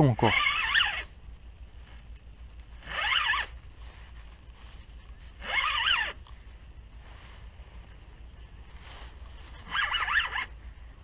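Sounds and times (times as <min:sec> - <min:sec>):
fishing reel drag buzzing: 0:01.9 - 0:03.6.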